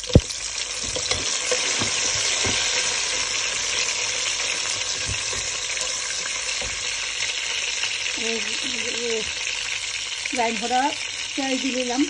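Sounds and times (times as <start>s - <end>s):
food sizzling in hot oil: 0.0s - 12.0s
spoon knocking against pan: 0.1s - 2.9s.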